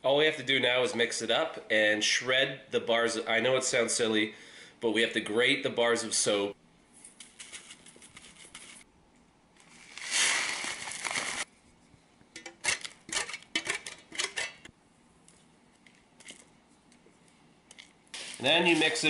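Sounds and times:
coffee grounds pouring hiss: 9.7 - 11.5, 18.2 - 19.0.

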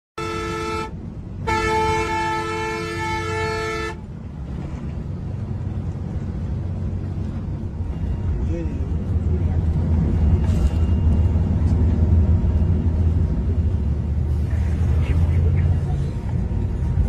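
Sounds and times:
bus horn blasts: 0.2 - 4.1
bus engine and road noise: 0.2 - 17.0.

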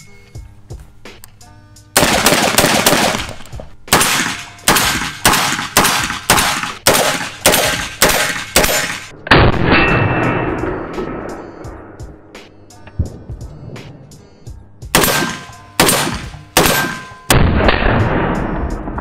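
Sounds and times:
shotgun firing rapid shots: 2.0 - 9.6, 14.9 - 18.6.

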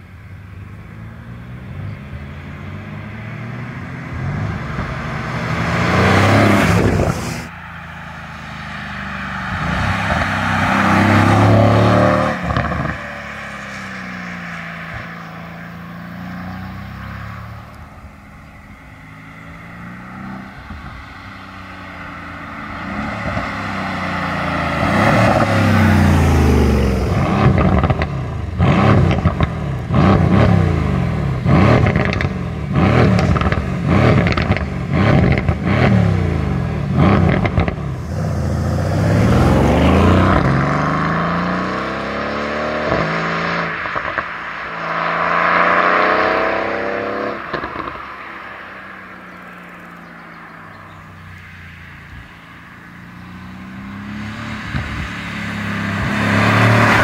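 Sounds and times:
car accelerating: 0.0 - 57.0
car engine revving: 0.5 - 57.0.

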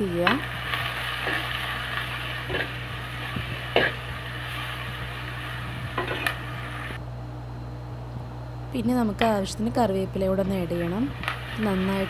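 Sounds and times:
onions sizzling in oil: 0.0 - 7.0, 10.6 - 12.0.

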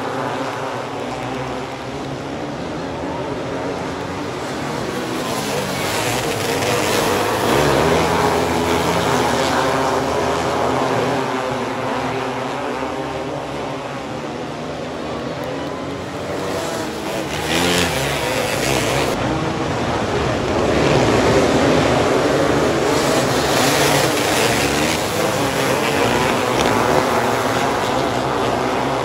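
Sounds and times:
race car engines revving: 0.0 - 29.0.

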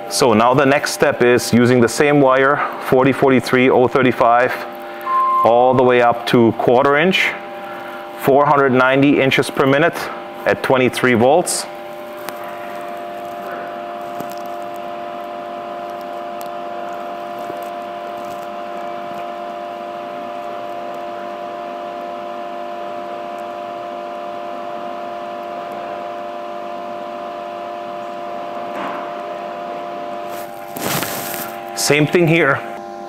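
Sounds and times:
welder cooling fan whirring: 0.0 - 33.0.

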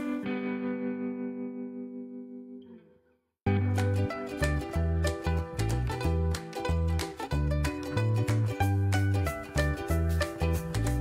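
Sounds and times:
upbeat instrumental music: 3.5 - 11.0.

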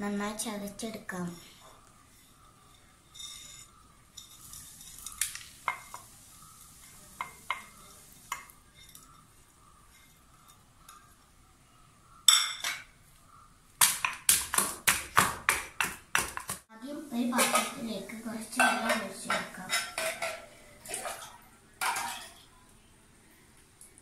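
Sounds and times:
spices scraped off ceramic plate: 1.4 - 5.2
pestle pounding in stone mortar: 13.8 - 16.6.

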